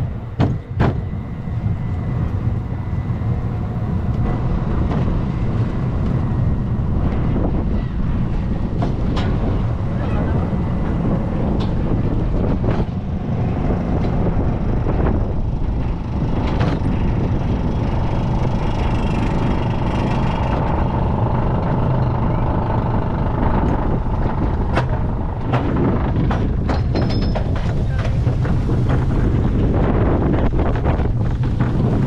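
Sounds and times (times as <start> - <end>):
roller coaster chain lift rumble: 0.0 - 32.0
wind on microphone: 0.0 - 32.0.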